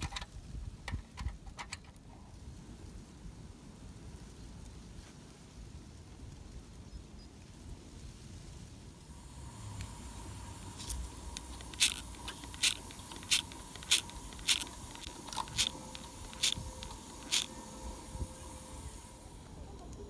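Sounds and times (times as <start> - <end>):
faint whine: 8.8 - 20.0
steam hissing bursts: 9.0 - 20.0.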